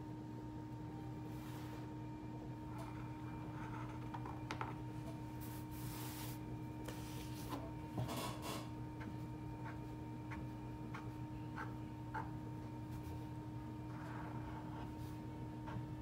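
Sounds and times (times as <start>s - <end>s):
steady low hum: 0.0s - 16.0s
hand brushing across tabletop: 5.4s - 7.6s.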